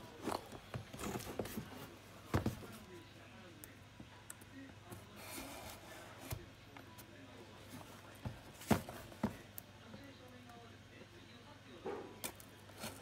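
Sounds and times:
cardboard scraping: 7.7 - 9.4.

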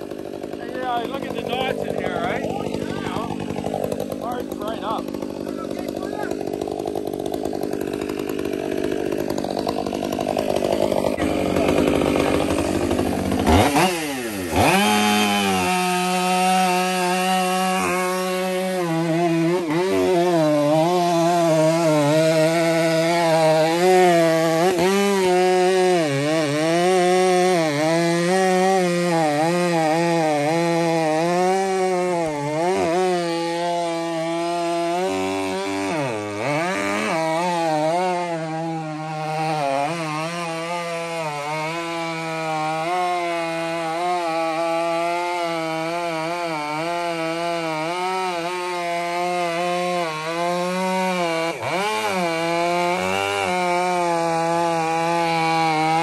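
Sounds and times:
chainsaw cutting log at high revs: 0.0 - 56.0.

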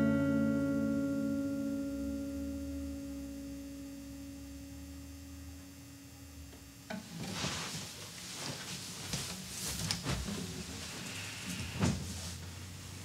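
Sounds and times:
acoustic guitar chord ringing: 0.0 - 5.6
rustling and knocking of guitar: 6.9 - 12.6.

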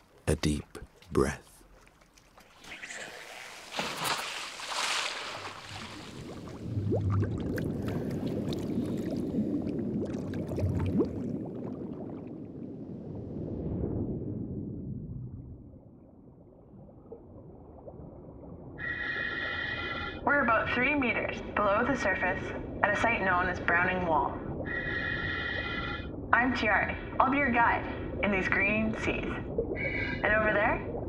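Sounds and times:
water splashing: 0.8 - 12.2
underwater bubbling and gurgling: 5.4 - 31.0.

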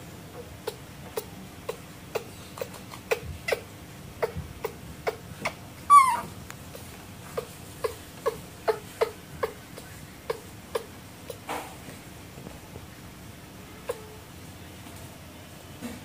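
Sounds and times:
baby monkey high call: 0.3 - 11.4, 13.7 - 14.3.

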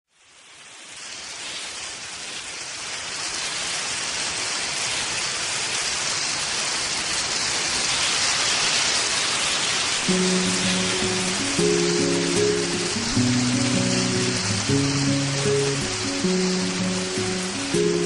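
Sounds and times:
heavy rainfall hiss: 0.1 - 18.0
instrumental music: 10.1 - 18.0.

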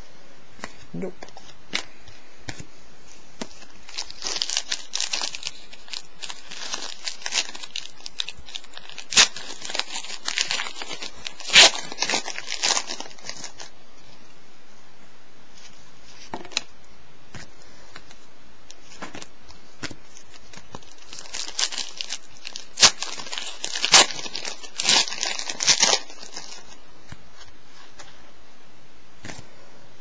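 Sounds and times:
plastic wrapper crinkling: 3.4 - 13.8, 18.7 - 28.1.

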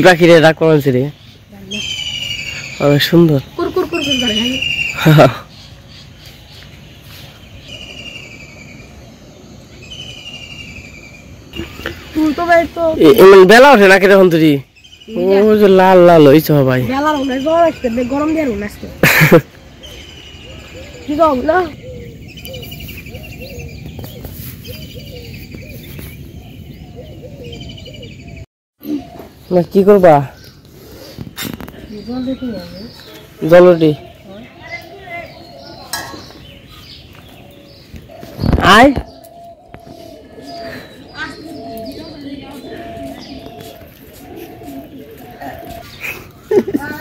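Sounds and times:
bird trilled call: 1.6 - 5.3.

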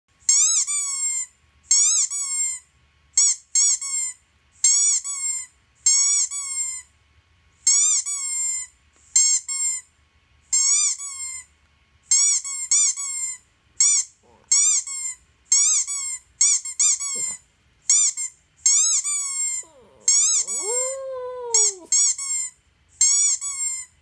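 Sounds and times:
squeaky toy squeaking: 0.3 - 2.5, 12.1 - 23.9.

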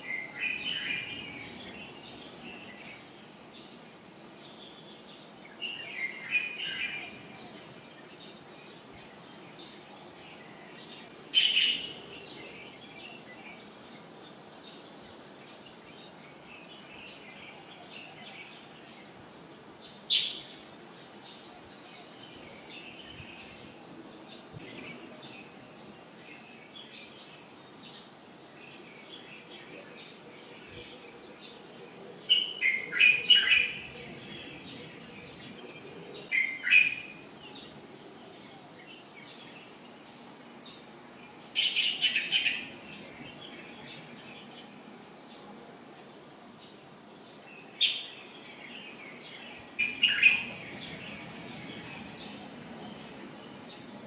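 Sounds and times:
birds chirping: 0.0 - 54.0
steady background hum: 48.4 - 54.0.

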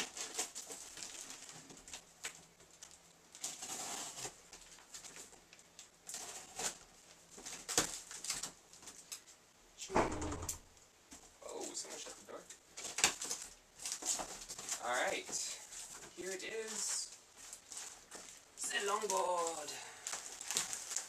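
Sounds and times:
cardboard rustling and scraping: 0.0 - 5.4, 6.0 - 9.0, 12.8 - 19.4
door shutting with thump: 9.9 - 10.7.

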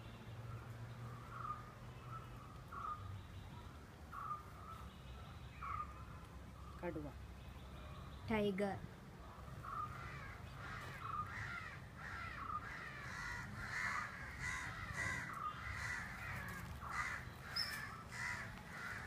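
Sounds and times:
crows cawing: 1.1 - 1.8, 2.7 - 3.1, 4.1 - 4.8, 5.6 - 6.2, 9.4 - 19.0.

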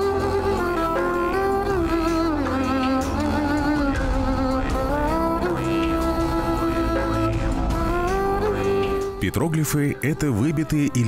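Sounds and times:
steady low drone: 0.0 - 9.4.

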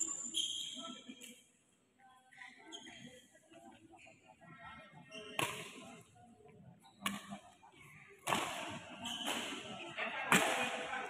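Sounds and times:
rackets hitting shuttlecock: 5.4 - 5.8, 7.0 - 7.4, 8.2 - 9.6, 10.3 - 10.8.

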